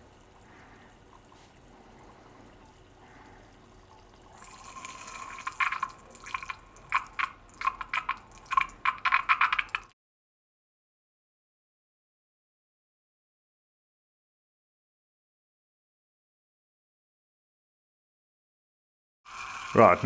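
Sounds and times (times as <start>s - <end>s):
liquid gurgling into funnel: 0.2s - 9.9s.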